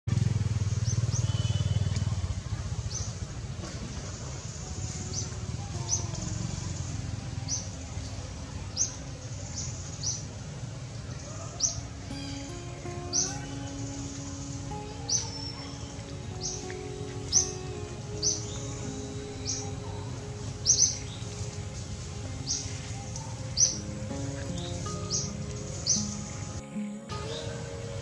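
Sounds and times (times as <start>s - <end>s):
soft background music: 2.2s - 28.0s
bird chirping: 11.0s - 28.0s.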